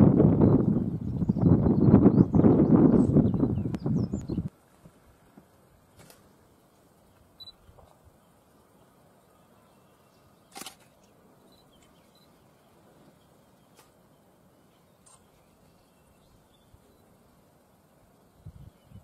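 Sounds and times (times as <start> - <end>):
faint high chirps: 7.0 - 17.3.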